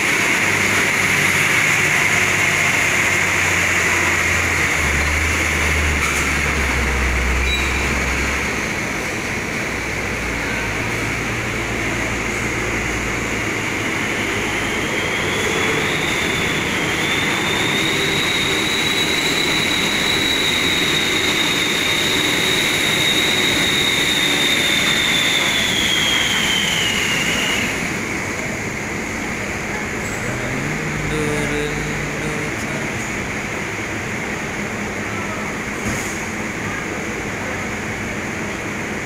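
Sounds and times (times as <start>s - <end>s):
diesel vehicle engines: 0.0s - 39.0s
machinery noise: 0.0s - 39.0s
high whine: 10.3s - 33.7s.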